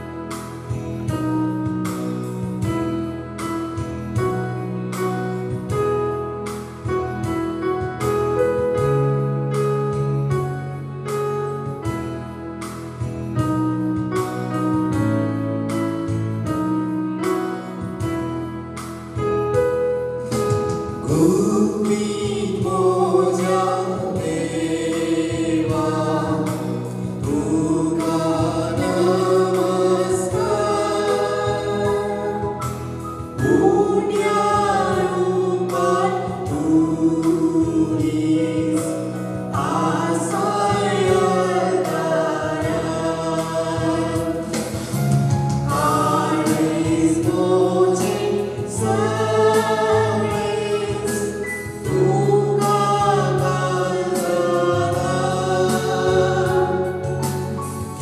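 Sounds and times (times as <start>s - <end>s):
held keyboard chords: 0.0s - 58.0s
choir singing a hymn: 21.0s - 58.0s.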